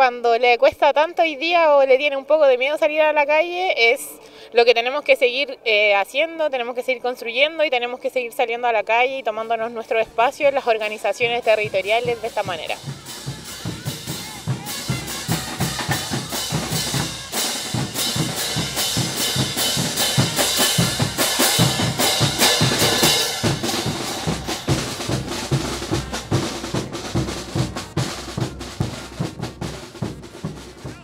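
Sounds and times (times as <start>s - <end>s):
percussion band drumming: 10.1s - 31.0s.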